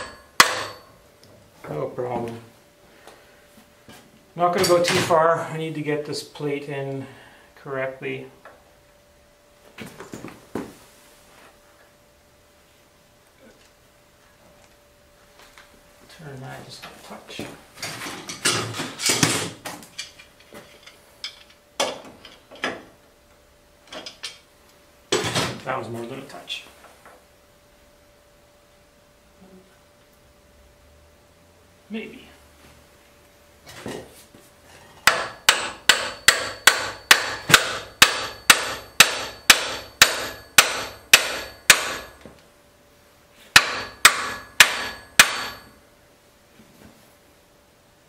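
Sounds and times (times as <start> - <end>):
hammer striking metal: 0.0 - 0.9, 35.0 - 42.2, 43.5 - 45.8.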